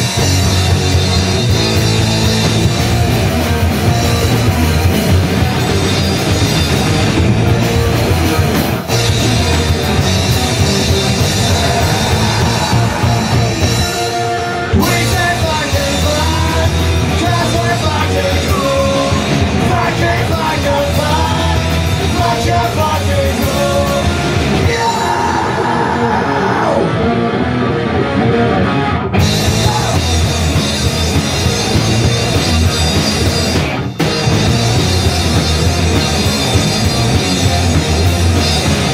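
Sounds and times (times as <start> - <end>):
punk rock band playing: 0.0 - 38.9
person singing: 11.0 - 27.1.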